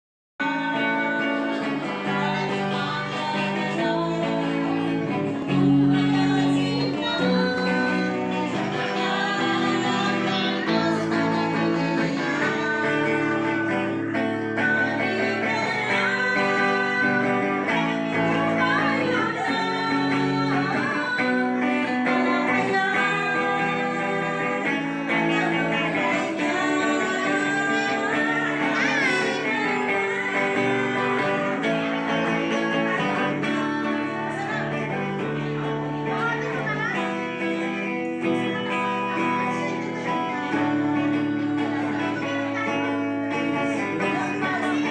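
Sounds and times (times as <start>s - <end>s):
electric guitar: 0.4s - 44.9s
women singing: 0.4s - 44.9s.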